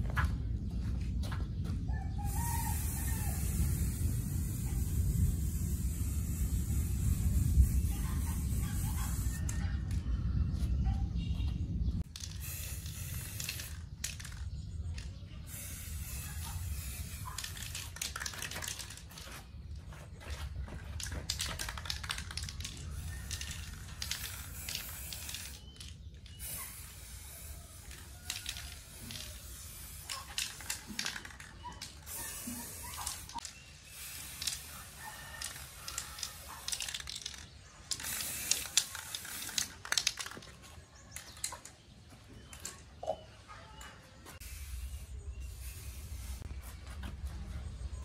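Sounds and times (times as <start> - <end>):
spray paint can hissing: 2.3 - 9.8, 12.0 - 19.3, 20.9 - 41.6, 44.4 - 46.8
rapid clicking and rattling: 17.2 - 19.2, 21.0 - 26.4, 27.8 - 33.6, 35.3 - 40.6.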